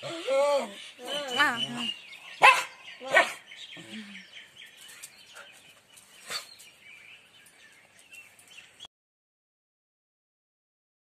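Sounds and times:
birds chirping faintly: 0:00.0 - 0:08.9
dog barking: 0:02.4 - 0:03.4.

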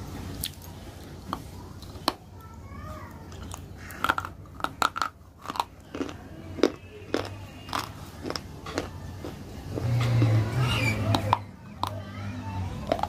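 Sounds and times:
teeth crunching ice: 0:03.3 - 0:12.0.

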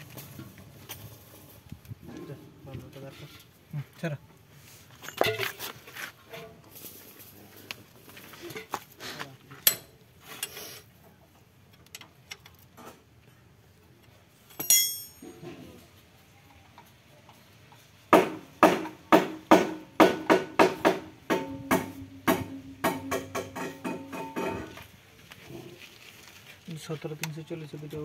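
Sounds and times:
hand tools clinking on metal: 0:09.6 - 0:10.6, 0:14.5 - 0:15.5
sharp ringing metal clink: 0:14.6 - 0:15.4.

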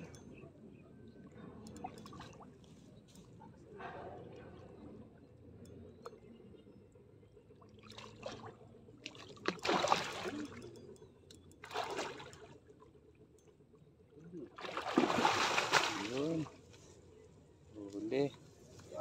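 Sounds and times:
fish splashing in water: 0:09.1 - 0:10.6, 0:11.6 - 0:12.5, 0:14.6 - 0:16.5.

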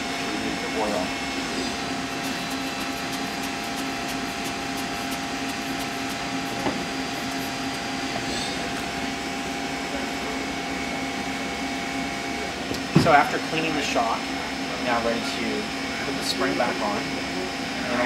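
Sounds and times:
mechanical hum: 0:00.0 - 0:18.0.

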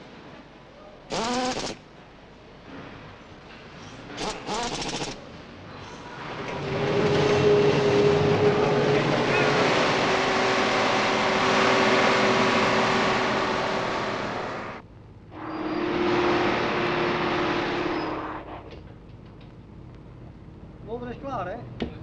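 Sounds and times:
rapid mechanical rattle: 0:01.1 - 0:01.8, 0:04.1 - 0:05.2
diesel truck engine running: 0:06.6 - 0:14.8
whining tone: 0:07.0 - 0:18.8.

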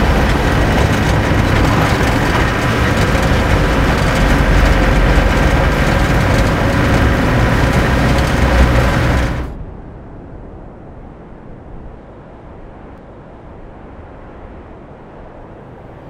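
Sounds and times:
vehicle engine rumble with rattling: 0:00.0 - 0:09.6
faint outdoor ambience: 0:00.0 - 0:16.0.

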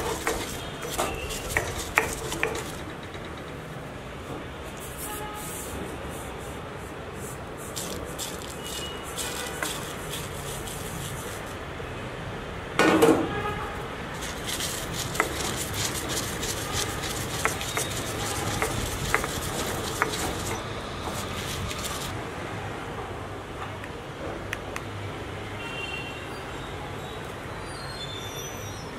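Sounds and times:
pestle knocking in stone mortar: 0:00.0 - 0:02.9, 0:07.8 - 0:11.4, 0:14.2 - 0:22.1.

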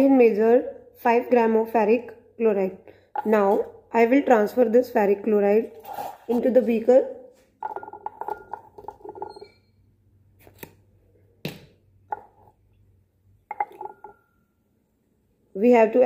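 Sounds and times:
glass beaker set down: 0:13.5 - 0:14.3.

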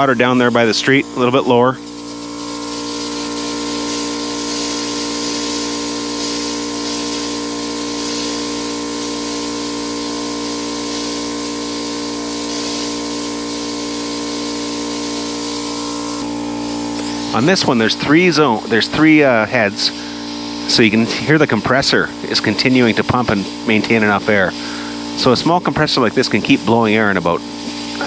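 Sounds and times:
air compressor droning: 0:00.0 - 0:28.0
sprinkler head hissing: 0:00.0 - 0:28.0.

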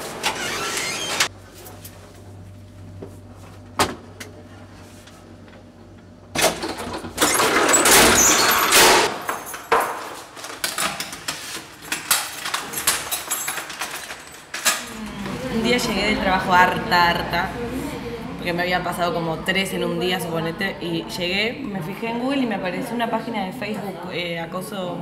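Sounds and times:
keys in door lock: 0:07.8 - 0:14.9.

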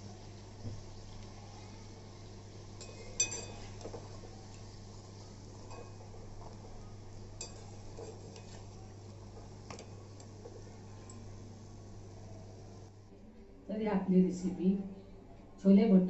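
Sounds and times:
low steady hum: 0:00.0 - 0:16.0
metal skimmer clinking on wok: 0:02.8 - 0:03.7, 0:07.4 - 0:08.5.

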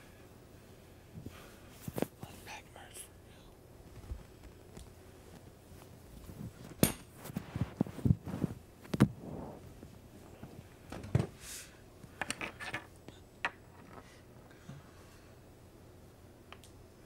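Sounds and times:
bedding rustling: 0:03.8 - 0:11.8
taps and thumps on microphone: 0:07.6 - 0:09.2.

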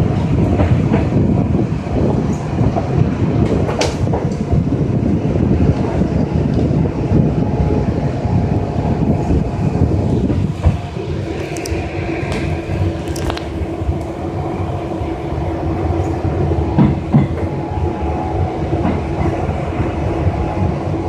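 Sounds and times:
train wheels rumbling: 0:00.0 - 0:21.0
steady hum: 0:07.1 - 0:21.0.

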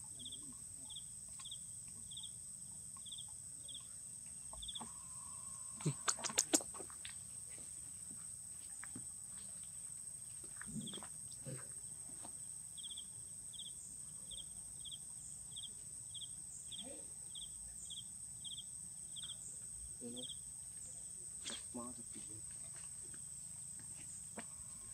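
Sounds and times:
insect drone: 0:00.0 - 0:24.9
sharp clicks: 0:06.0 - 0:06.8.

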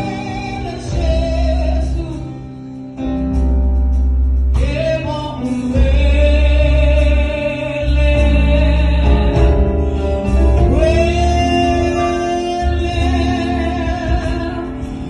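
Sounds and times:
bass guitar notes: 0:00.0 - 0:15.0
gospel choir singing: 0:05.0 - 0:15.0.

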